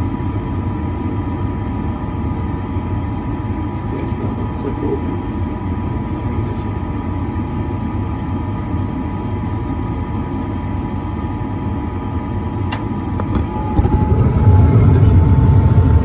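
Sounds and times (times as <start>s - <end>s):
furnace inducer motor running: 0.0s - 16.0s
gas burners rumbling: 0.0s - 16.0s
sharp click: 12.7s - 13.5s.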